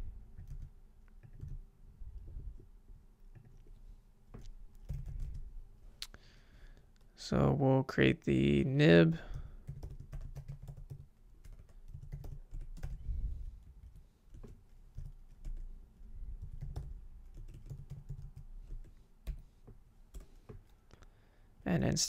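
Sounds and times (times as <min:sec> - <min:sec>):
keyboard typing: 0:00.3 - 0:01.6, 0:04.3 - 0:05.5, 0:09.3 - 0:13.0, 0:13.8 - 0:15.7, 0:16.4 - 0:20.7.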